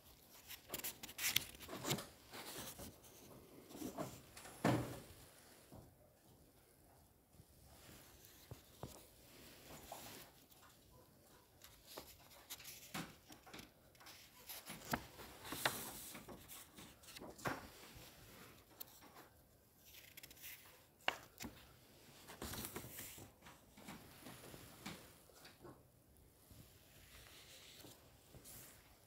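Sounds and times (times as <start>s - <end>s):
book pages turning: 0.0s - 4.2s, 8.1s - 10.8s, 11.6s - 25.0s, 27.0s - 28.8s
paper rustling: 0.0s - 4.2s, 8.0s - 25.6s, 27.0s - 29.0s.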